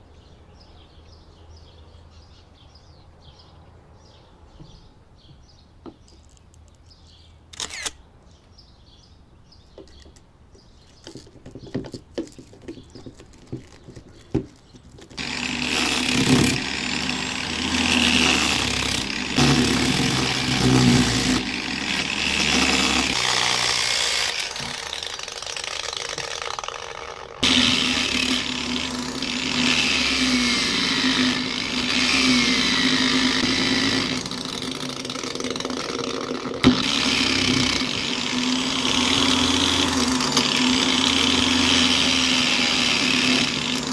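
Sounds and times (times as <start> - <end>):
angle grinder grinding steel: 13.5 - 43.9.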